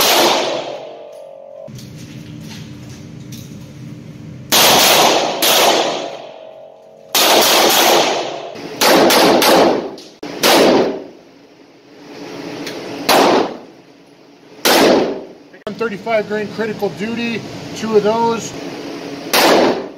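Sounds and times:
revolver gunshots echoing: 0.0s - 1.7s, 4.5s - 11.2s, 12.8s - 13.8s, 14.6s - 15.4s, 19.2s - 19.9s.

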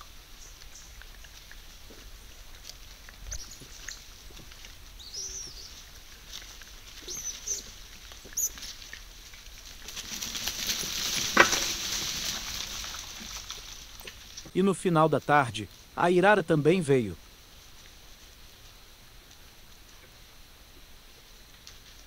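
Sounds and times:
rustling in dry leaves: 0.0s - 22.0s.

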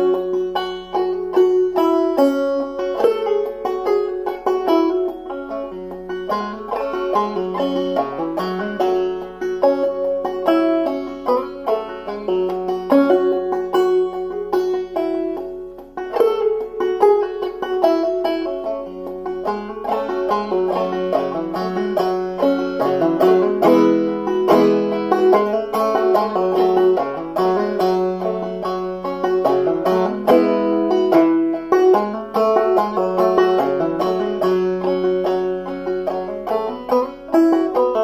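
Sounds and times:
banjo plucked clawhammer style: 0.0s - 38.0s.

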